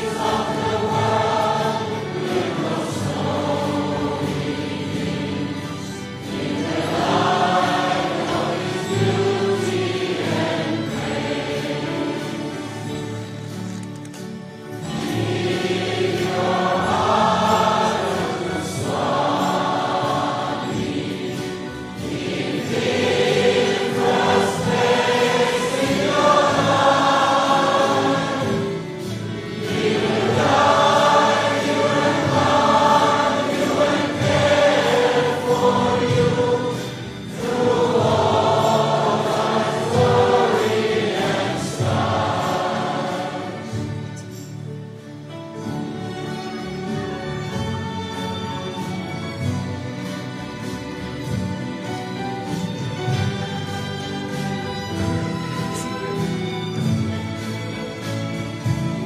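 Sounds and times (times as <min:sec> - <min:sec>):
people singing devotional song: 0:00.0 - 0:13.2, 0:14.8 - 0:44.5
instrumental backing music: 0:00.0 - 0:59.0.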